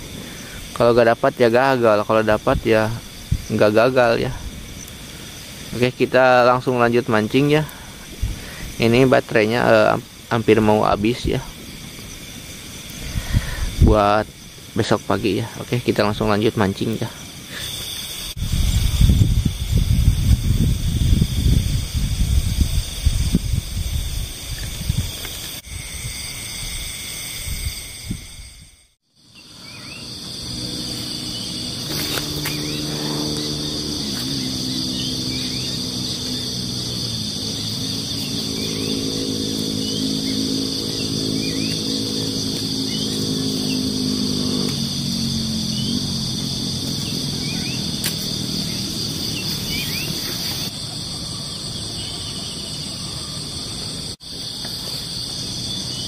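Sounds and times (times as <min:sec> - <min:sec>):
low hum of held pitches: 0:00.0 - 0:50.7
high insect drone: 0:00.0 - 0:56.0.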